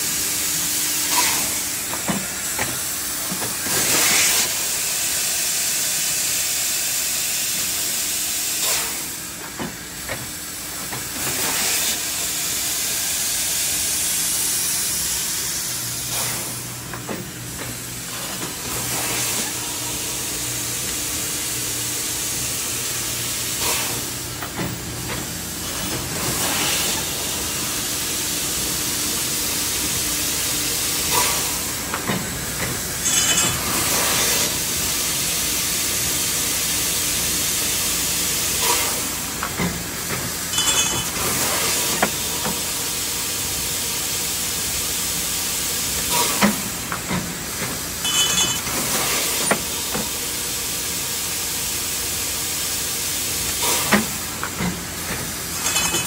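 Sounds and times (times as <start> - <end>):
machinery clanks: 31.0 - 34.6, 38.6 - 42.7, 46.0 - 50.2, 53.5 - 56.0.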